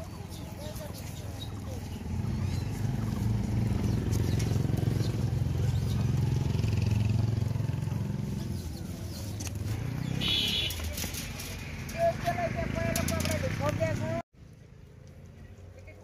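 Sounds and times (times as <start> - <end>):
vehicle engine humming: 0.0 - 16.0.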